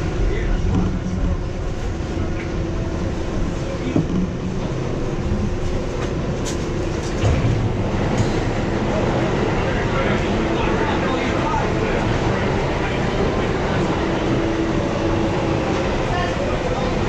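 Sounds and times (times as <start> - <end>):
subway train rumbling on track: 0.0 - 17.0.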